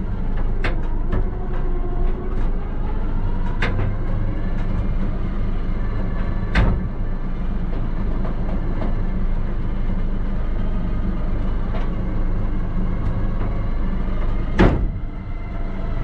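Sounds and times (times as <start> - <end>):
truck winch and engine running: 0.0 - 16.0
loud metal clunk: 6.5 - 7.0, 14.6 - 15.1.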